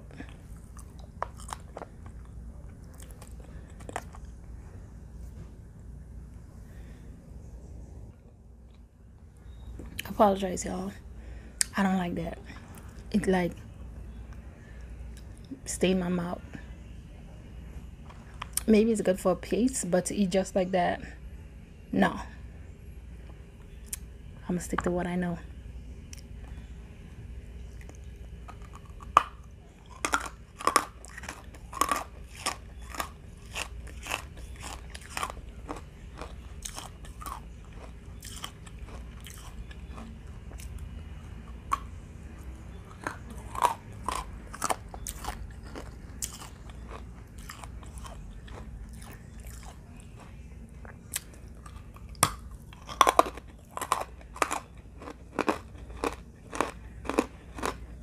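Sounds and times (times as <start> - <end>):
person crunching hard food: 0.0 - 4.4, 27.7 - 58.0.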